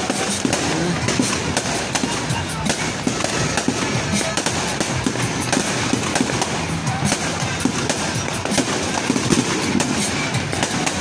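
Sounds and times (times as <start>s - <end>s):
firecrackers crackling: 0.0s - 11.0s.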